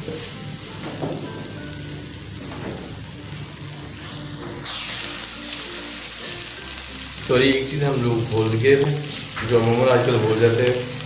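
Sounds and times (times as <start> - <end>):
background music: 0.0 - 11.0
onions sizzling in pan: 0.0 - 11.0.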